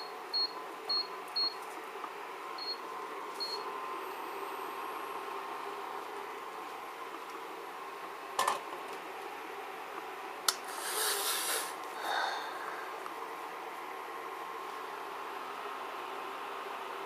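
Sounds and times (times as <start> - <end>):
faint hum with thin whine: 0.0 - 17.0
scraping hiss: 10.6 - 11.8.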